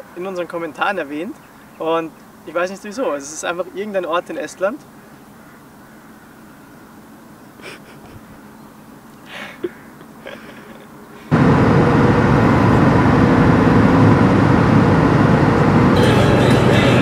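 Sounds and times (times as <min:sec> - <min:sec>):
diesel engine and road noise drone: 0:08.9 - 0:17.0.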